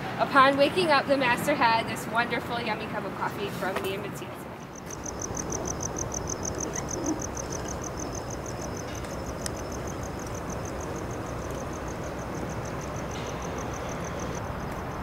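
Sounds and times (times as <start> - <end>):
cricket chirping: 4.7 - 15.0.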